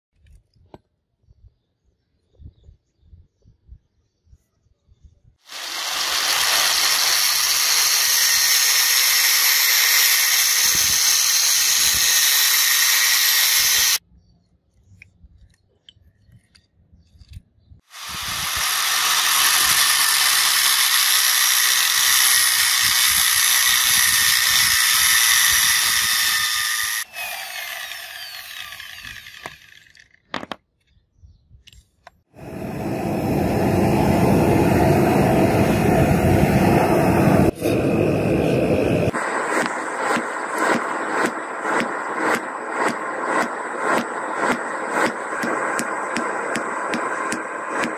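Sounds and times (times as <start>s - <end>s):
angle grinder cutting steel: 5.5s - 14.0s, 17.9s - 30.2s
grinder disc winding down: 5.5s - 14.0s, 17.9s - 30.1s.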